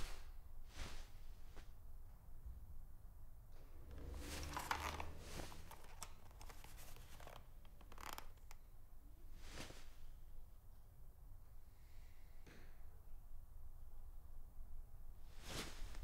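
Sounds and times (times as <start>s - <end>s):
rustling and scraping handling: 3.8s - 8.6s.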